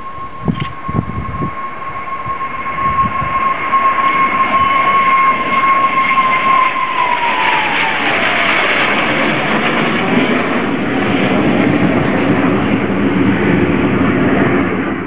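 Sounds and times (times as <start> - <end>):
aircraft engine whine: 0.0 - 15.0
rushing engine noise: 0.0 - 15.0.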